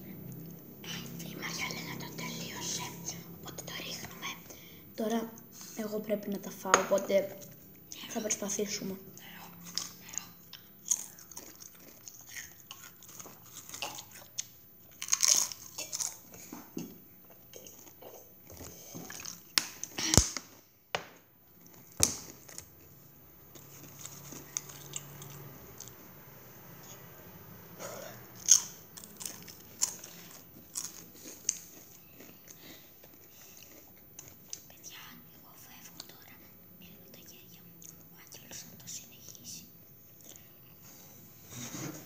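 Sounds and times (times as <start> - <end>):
tortilla chips crunching: 14.9 - 16.4, 28.4 - 31.7.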